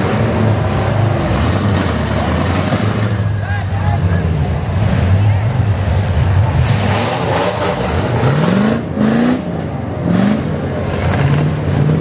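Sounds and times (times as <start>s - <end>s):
truck engines revving: 0.0s - 12.0s.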